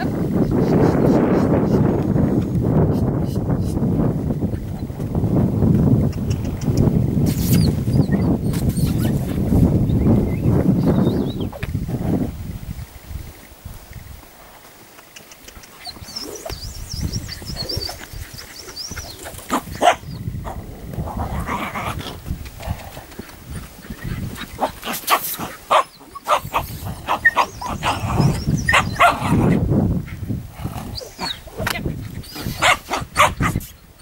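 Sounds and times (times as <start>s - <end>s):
horse hooves cantering on sand: 3.6s - 12.2s, 13.3s - 20.0s, 20.8s - 25.8s
small dog barking: 19.8s - 20.0s, 24.6s - 27.8s, 28.7s - 29.4s, 32.6s - 33.6s.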